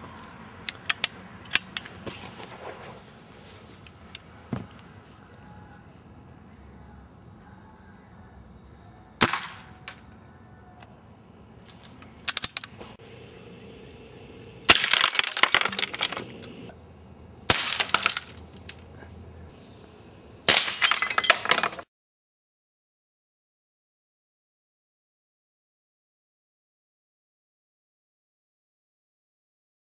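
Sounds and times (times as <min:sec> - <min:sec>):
air pistol firing: 0:09.2 - 0:10.0
glass bottles shattering: 0:17.5 - 0:18.8, 0:20.5 - 0:21.8.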